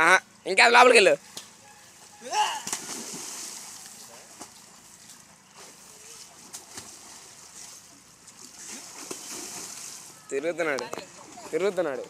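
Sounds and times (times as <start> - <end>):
water splashing and sloshing: 2.6 - 10.2.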